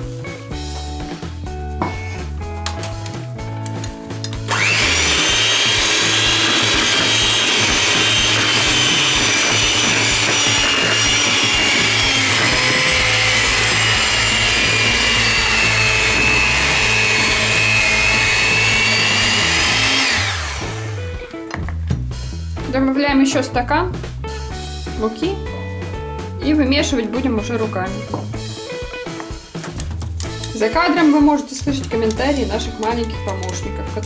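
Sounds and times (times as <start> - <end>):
electric hand mixer whining: 4.4 - 21.4, 31.8 - 34.0.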